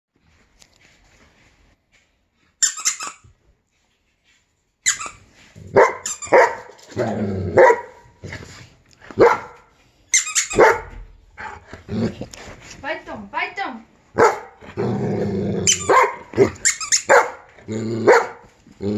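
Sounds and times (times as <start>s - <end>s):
high squeaky sound: 2.6s - 3.4s, 4.8s - 5.3s, 5.9s - 6.7s, 10.1s - 10.9s, 15.7s - 17.2s
dog barking: 5.7s - 6.8s, 7.6s - 8.1s, 9.2s - 9.7s, 10.5s - 11.6s, 14.2s - 14.6s, 15.7s - 18.5s.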